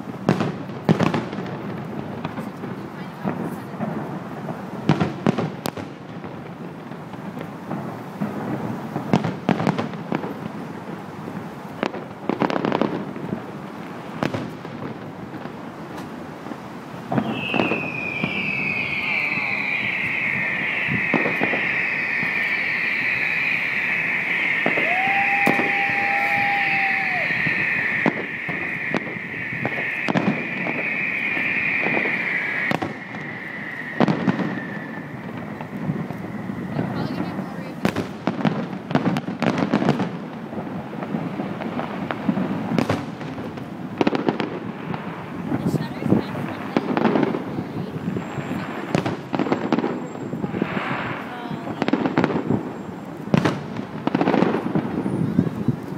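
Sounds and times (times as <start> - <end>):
fireworks bursting: 0.0 - 55.9
fireworks crackling: 0.0 - 55.9
high-pitched hiss: 17.2 - 37.9
high falling whistle: 17.2 - 38.0.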